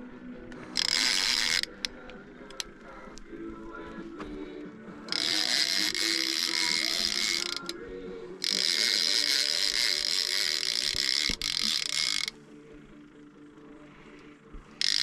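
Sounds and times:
fishing reel drag buzzing: 0.6s - 2.7s, 5.1s - 7.8s, 8.4s - 12.4s, 14.8s - 15.0s.

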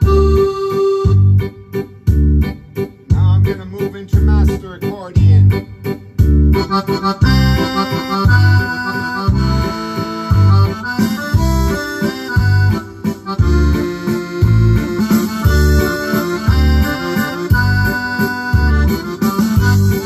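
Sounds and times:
accordion melody with chords: 0.0s - 20.0s
keyboard waltz accompaniment: 0.0s - 20.0s.

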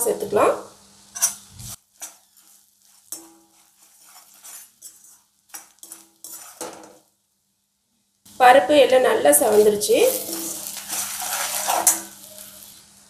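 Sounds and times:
steel spoon scraping a metal pan: 1.1s - 7.0s, 9.5s - 12.8s.

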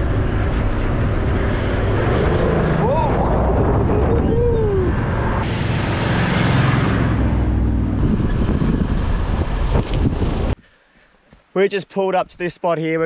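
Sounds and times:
rush of tyres on sand: 8.0s - 10.6s.

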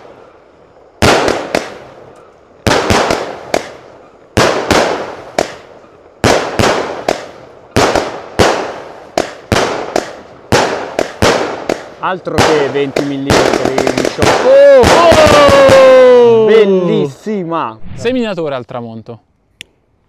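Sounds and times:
firework bangs: 0.0s - 16.4s.

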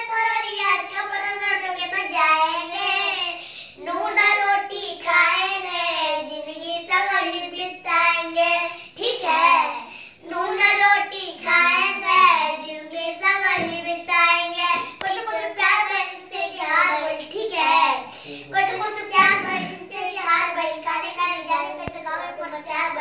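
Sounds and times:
boy singing: 0.0s - 23.0s
short breaths: 3.4s - 3.8s, 9.8s - 10.2s, 18.0s - 18.6s.

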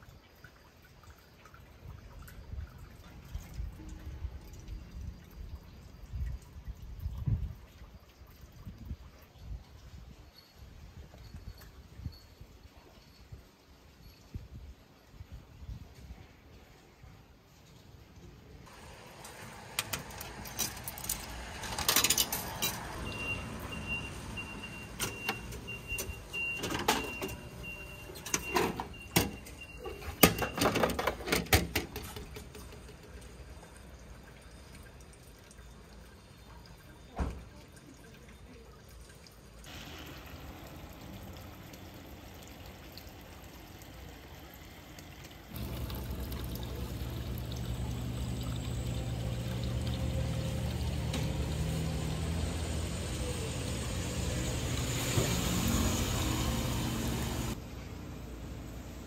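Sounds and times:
running water: 0.0s - 57.6s
vending machine clicks and clunks: 24.5s - 32.4s.

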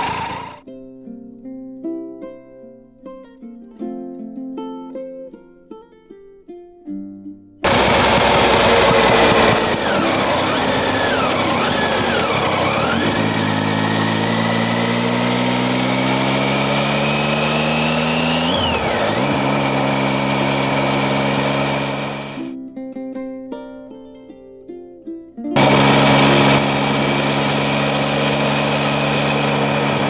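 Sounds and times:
motorcycle engine pulling: 0.0s - 0.6s, 7.6s - 22.5s, 25.6s - 30.0s.

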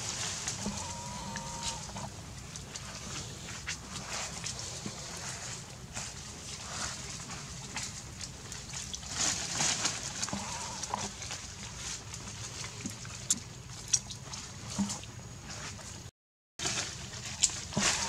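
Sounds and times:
outdoor background noise: 0.0s - 18.0s
faint animal calls: 0.6s - 2.1s, 10.2s - 11.2s, 17.8s - 18.0s.

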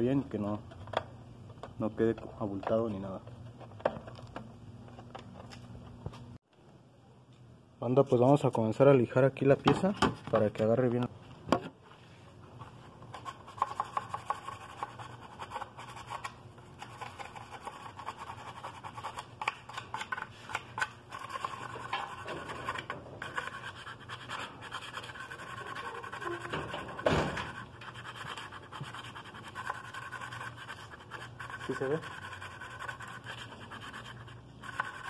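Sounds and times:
sandpaper rasping on plastic: 19.9s - 35.0s.

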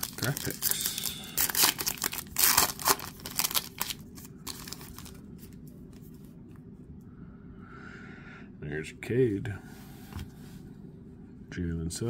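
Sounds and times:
foil wrapper crinkling and tearing: 0.0s - 5.2s
cards rustling: 0.0s - 6.3s.

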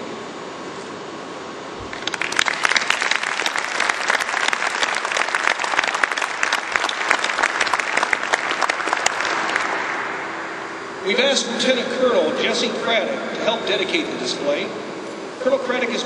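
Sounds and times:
audience applauding: 1.9s - 10.7s.

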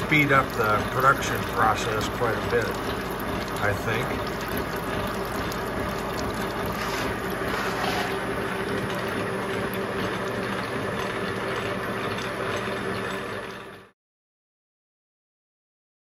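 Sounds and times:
coolant splashing: 0.0s - 13.9s
milling machine drone: 0.0s - 13.9s
gear hob cutting metal: 6.6s - 13.7s.

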